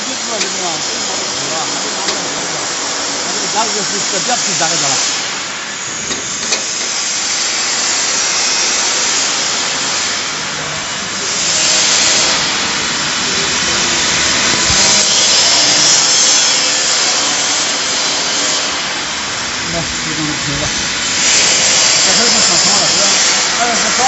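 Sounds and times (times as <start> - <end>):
machine hissing rush: 0.0 - 24.0.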